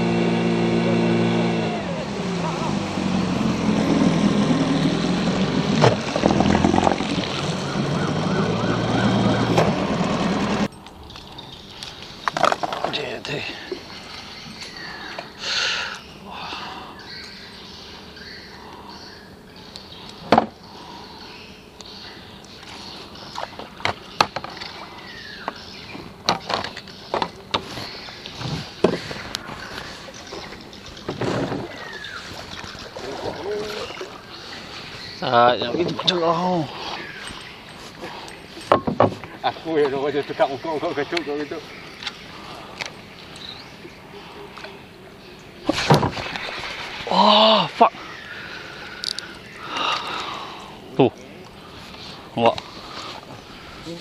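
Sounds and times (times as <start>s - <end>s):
outboard motor running: 0.0s - 10.7s, 21.8s - 54.0s
water rushing along hull: 0.0s - 10.7s, 27.6s - 45.0s, 45.6s - 50.6s
gear bumping boat hull: 4.8s - 10.7s, 30.3s - 34.1s, 38.7s - 40.0s.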